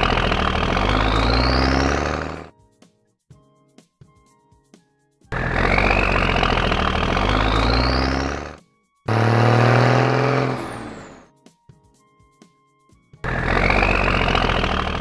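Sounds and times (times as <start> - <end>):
low engine-like hum: 0.0 - 2.5, 5.3 - 11.3, 13.2 - 15.0
light background music: 2.5 - 15.0.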